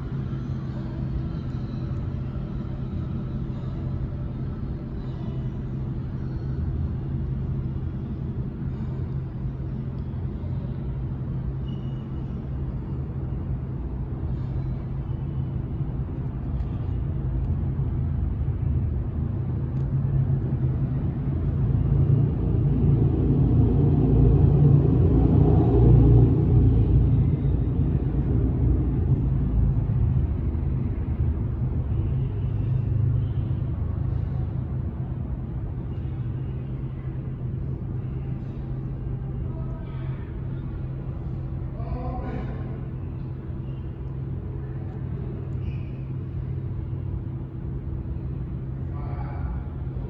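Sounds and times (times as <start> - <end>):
subway train rumbling in tunnel: 0.0 - 50.0.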